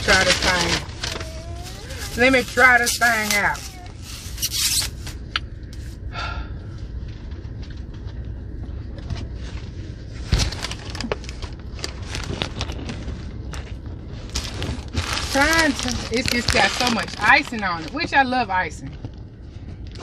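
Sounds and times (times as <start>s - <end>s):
paper and cardboard rustling: 0.0s - 5.2s, 10.2s - 18.4s
steady low rumble: 0.0s - 20.0s.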